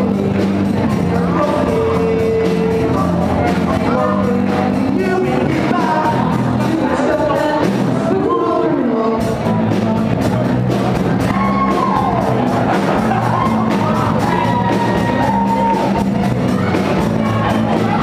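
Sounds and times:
live rock band playing: 0:00.0 - 0:18.0.

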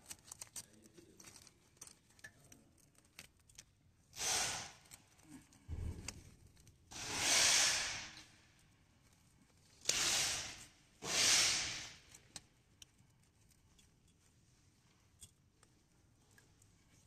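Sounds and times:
soft hissing bursts: 0:04.2 - 0:04.8, 0:06.9 - 0:08.4, 0:09.9 - 0:12.2.

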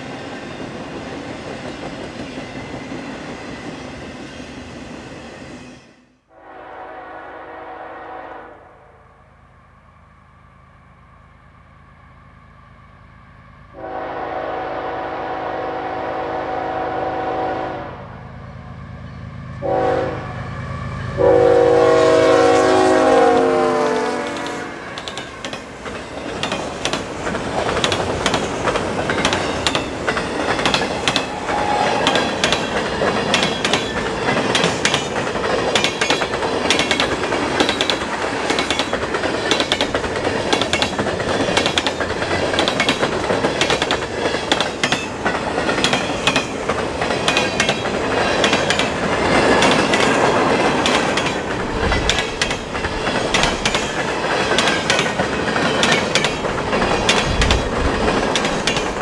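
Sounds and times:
train rumble: 0:09.4 - 0:59.0
train wheels clacking: 0:24.3 - 0:59.0.

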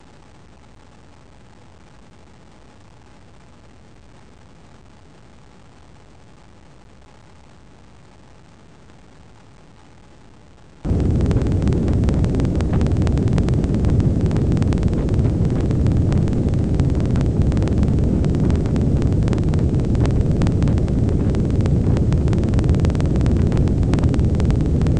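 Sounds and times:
steady low rumble: 0:10.9 - 0:24.9.

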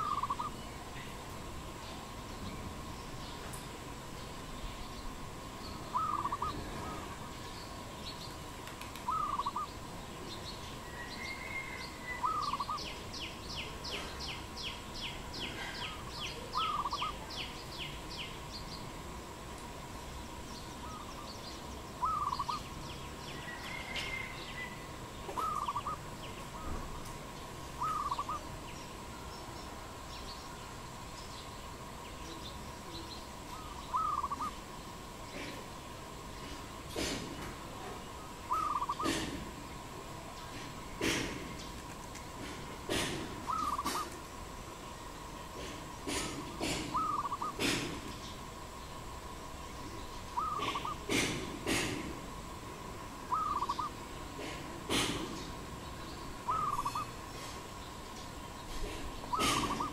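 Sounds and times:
dove cooing: 0:00.0 - 0:00.6, 0:05.9 - 0:07.2, 0:09.1 - 0:09.7, 0:11.4 - 0:13.0, 0:15.5 - 0:17.2, 0:22.0 - 0:22.7, 0:23.6 - 0:26.8, 0:27.8 - 0:28.5, 0:33.6 - 0:34.6, 0:38.5 - 0:39.4, 0:42.9 - 0:44.1, 0:45.6 - 0:47.8, 0:50.4 - 0:51.9, 0:53.3 - 0:55.1, 0:56.5 - 0:57.2, 0:58.9 - 0:59.9
rapid high ticking bird notes: 0:00.0 - 0:00.8, 0:46.9 - 0:48.4
birds chirping: 0:00.0 - 0:19.1, 0:20.0 - 0:52.4, 0:53.1 - 0:59.9.

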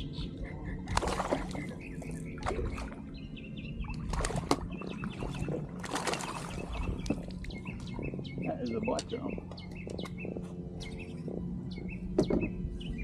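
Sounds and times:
bird chirping: 0:06.2 - 0:13.0.

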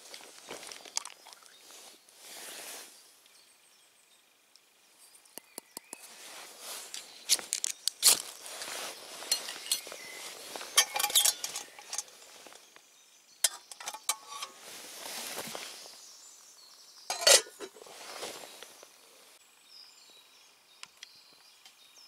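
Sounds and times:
ferro rod scraping: 0:08.0 - 0:12.4
metal cup clinking: 0:09.2 - 0:12.1, 0:13.4 - 0:14.6, 0:17.1 - 0:17.8.

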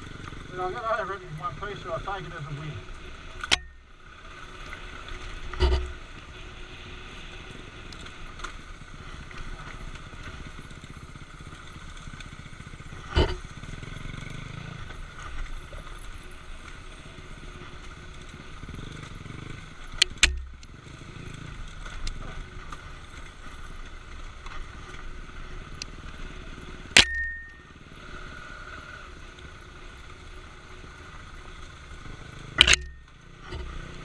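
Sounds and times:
motorcycle engine running: 0:00.0 - 0:34.0
rattle and rumble from rough ground: 0:00.0 - 0:34.0
sharp knocks: 0:05.6 - 0:06.0.

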